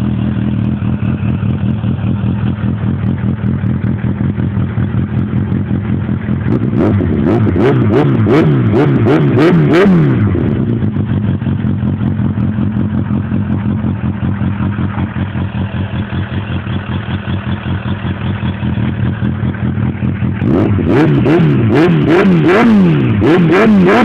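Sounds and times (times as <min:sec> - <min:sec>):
motorcycle engine idling: 0:00.0 - 0:24.0
engine revving: 0:05.7 - 0:24.0.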